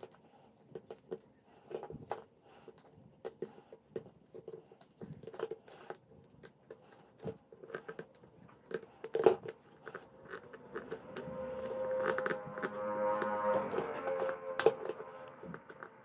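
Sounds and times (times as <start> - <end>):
background music: 10.1 - 16.0.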